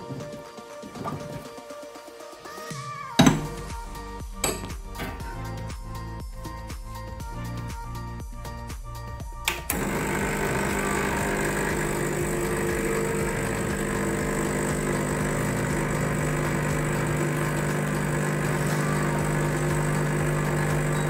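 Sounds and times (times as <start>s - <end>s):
espresso machine pump humming: 9.7s - 21.0s.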